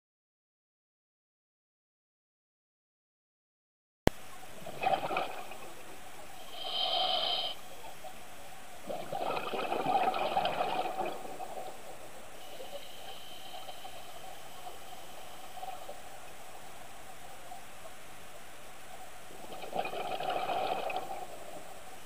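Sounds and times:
steady underwater hiss: 4.1s - 22.0s
bubbling exhale: 6.4s - 7.6s, 8.8s - 16.0s, 19.4s - 21.6s
diver breathing through regulator: 6.4s - 7.7s, 12.4s - 16.0s.

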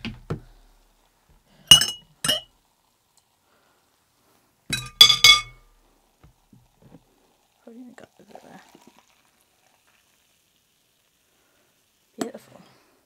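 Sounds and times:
glass jar clinking: 1.7s - 2.5s, 4.7s - 5.6s.

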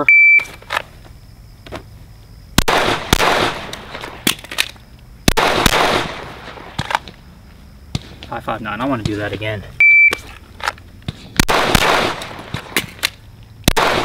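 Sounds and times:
pistol shots with rolling echo: 2.6s - 4.4s, 5.3s - 7.0s, 11.4s - 13.0s, 13.7s - 14.0s.

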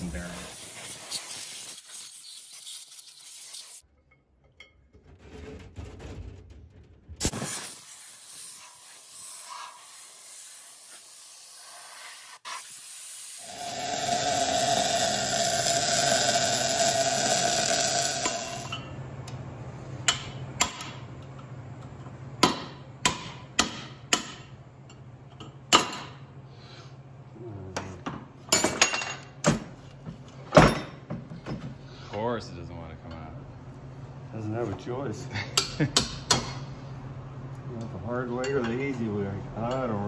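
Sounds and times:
welding crackling hiss: 7.2s - 18.7s.

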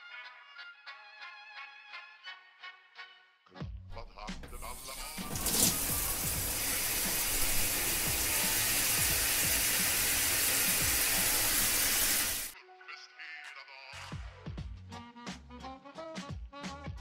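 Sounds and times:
background music: 0.0s - 17.0s
shower water running: 4.4s - 12.6s.

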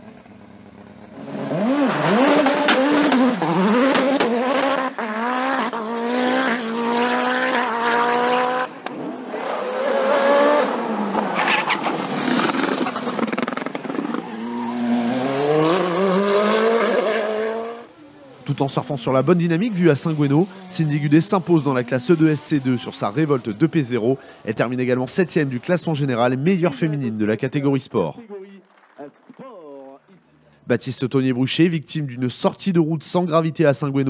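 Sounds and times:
race car engine revving: 1.0s - 26.8s.

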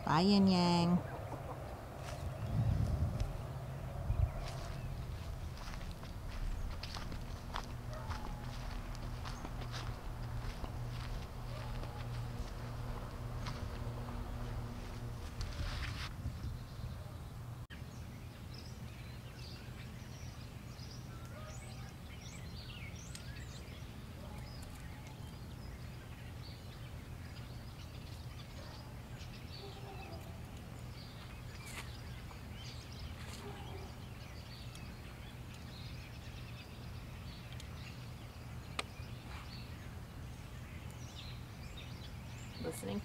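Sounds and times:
birds chirping: 0.0s - 43.0s
steady low rumble: 0.7s - 21.0s.

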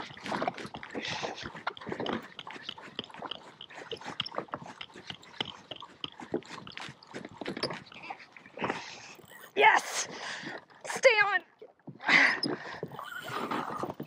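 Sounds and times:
raccoon chewing: 0.0s - 9.5s.

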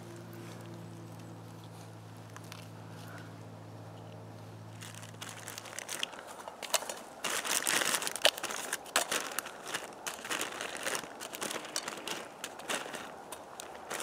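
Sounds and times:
plastic food packet crinkling: 4.7s - 14.0s.

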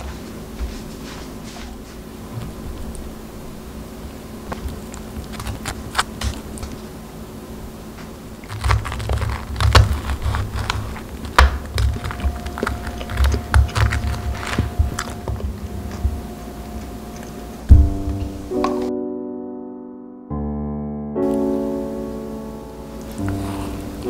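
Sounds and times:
knife and fork crunching toast: 4.5s - 6.8s, 8.4s - 16.0s.

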